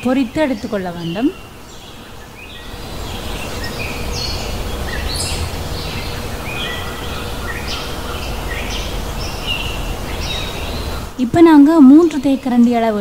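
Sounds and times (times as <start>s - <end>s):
small birds chirping: 0.0s - 11.2s
outdoor background hiss: 0.0s - 13.0s
low rumble: 2.6s - 10.2s.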